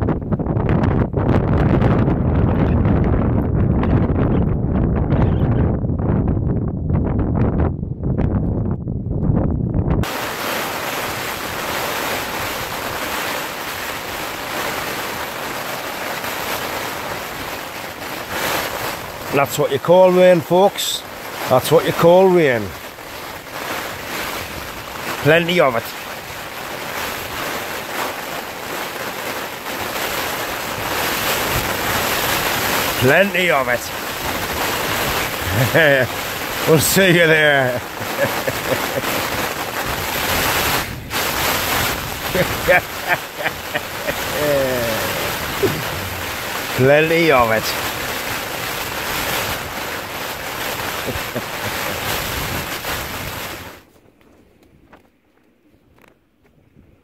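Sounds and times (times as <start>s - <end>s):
heavy rain on tent: 10.0s - 54.0s.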